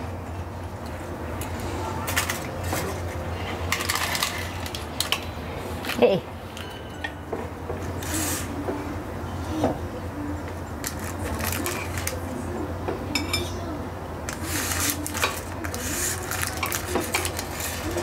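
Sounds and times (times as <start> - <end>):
parchment paper crackling: 10.8 - 12.4, 14.3 - 18.0.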